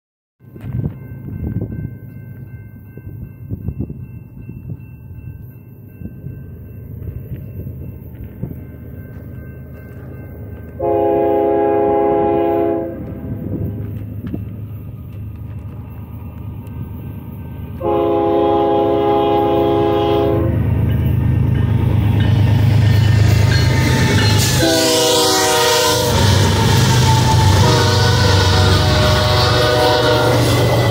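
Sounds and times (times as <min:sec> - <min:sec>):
diesel locomotive engine: 0:00.4 - 0:30.9
train wheels rolling: 0:06.6 - 0:30.9
locomotive air horn blasts: 0:10.8 - 0:13.3, 0:17.8 - 0:20.6, 0:23.9 - 0:30.9.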